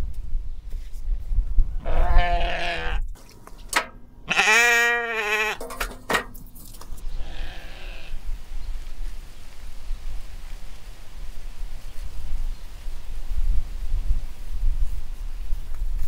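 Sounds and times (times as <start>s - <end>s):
farm animal bleating: 1.8s - 3.1s, 4.2s - 5.7s, 7.1s - 8.3s.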